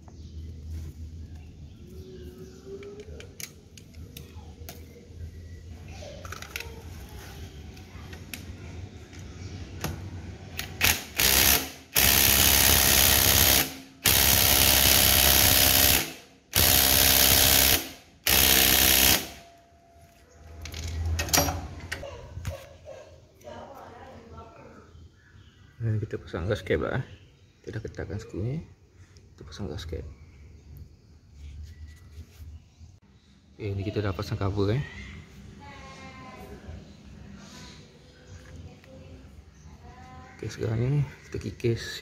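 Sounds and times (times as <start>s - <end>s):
tools clinking and clicking: 2.7s - 5.0s, 20.1s - 22.1s
cordless impact driver bursts: 10.6s - 19.4s.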